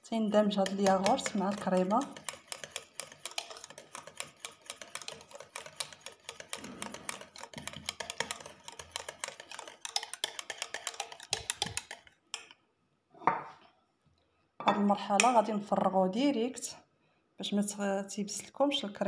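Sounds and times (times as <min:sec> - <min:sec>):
whisk ticking against metal pan: 0:00.2 - 0:12.5.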